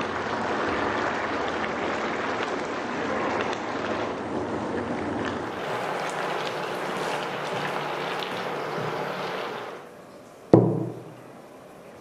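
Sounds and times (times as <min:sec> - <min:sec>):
food sizzling in a wok: 0:05.5 - 0:09.8.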